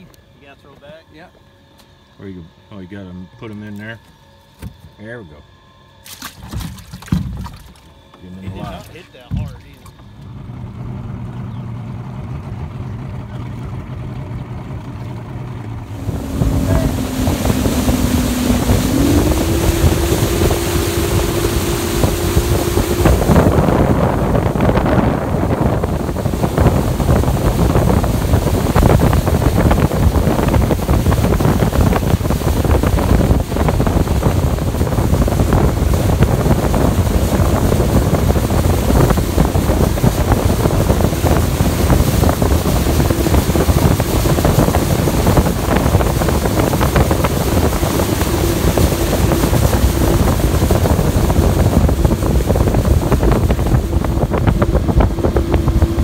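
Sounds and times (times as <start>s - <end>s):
outboard motor running: 0.0s - 56.0s
wind noise on microphone: 15.8s - 56.0s.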